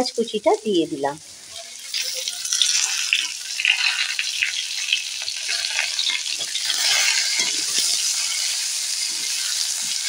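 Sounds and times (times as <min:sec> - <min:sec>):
vegetables sizzling in oil: 0:00.0 - 0:10.0
spatula scraping and knocking pan: 0:05.6 - 0:10.0.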